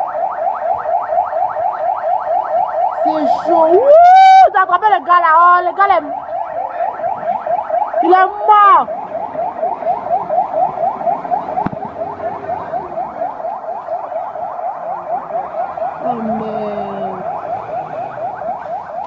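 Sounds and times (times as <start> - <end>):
car alarm siren: 0.0 - 19.0
low held tone: 16.0 - 17.4.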